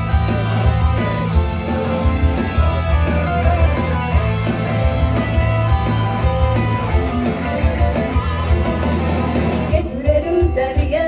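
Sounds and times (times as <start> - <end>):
pop song over sound system: 0.0 - 11.0
young woman singing: 9.7 - 11.0.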